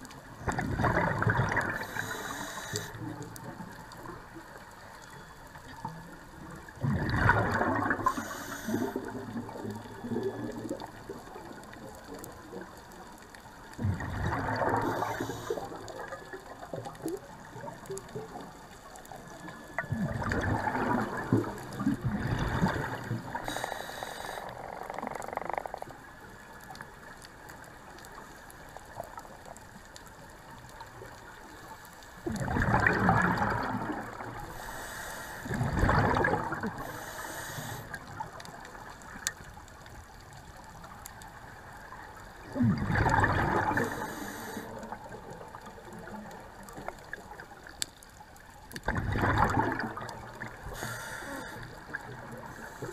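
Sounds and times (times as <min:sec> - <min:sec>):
low steady hiss: 0:00.0 - 0:48.9, 0:49.8 - 0:52.9
exhaled bubbles rushing: 0:00.4 - 0:02.0, 0:06.8 - 0:11.6, 0:13.8 - 0:17.7, 0:19.8 - 0:23.4, 0:32.2 - 0:34.5, 0:35.4 - 0:36.8, 0:42.4 - 0:44.0, 0:48.8 - 0:50.8.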